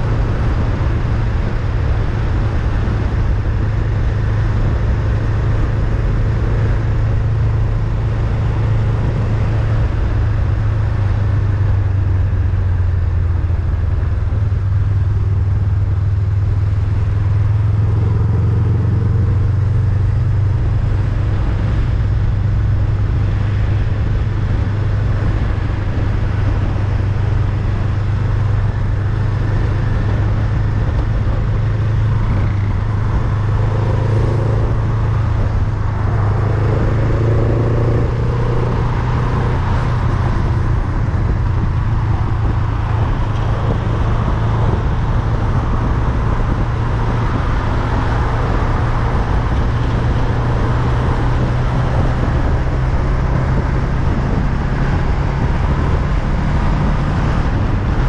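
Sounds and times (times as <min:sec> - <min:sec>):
motorcycle engine running: 0:00.0 - 0:58.0
wind noise on microphone: 0:00.0 - 0:58.0.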